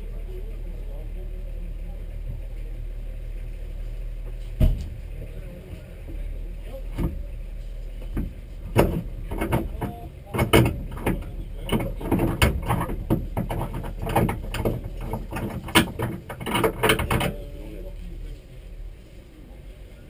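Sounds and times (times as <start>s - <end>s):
steady low rumble: 0.0s - 20.0s
knocks and clatters on car: 8.0s - 17.4s.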